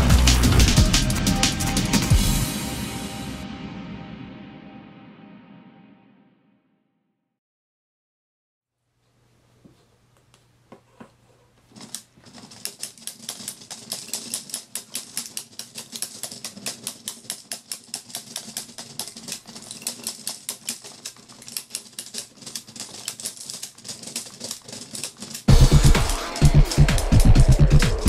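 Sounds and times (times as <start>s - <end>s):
plastic pellets clicking and rattling: 11.8s - 28.0s
stepper motor humming: 25.5s - 28.0s.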